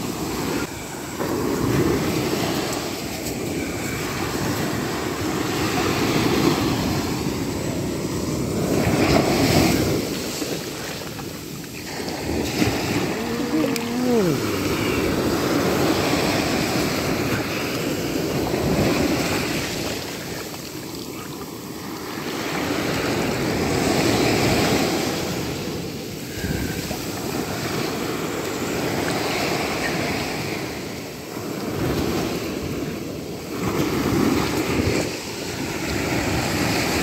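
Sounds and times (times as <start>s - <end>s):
waves breaking on a beach: 0.0s - 37.0s.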